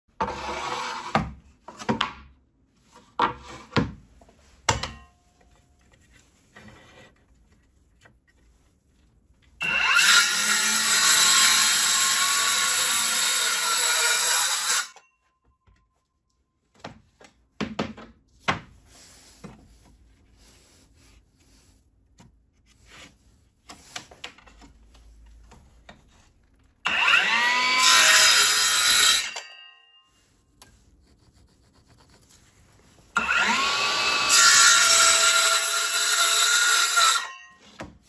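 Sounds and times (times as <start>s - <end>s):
circular saw cutting wood: 9.6s - 15.0s, 26.8s - 29.8s, 33.1s - 37.6s.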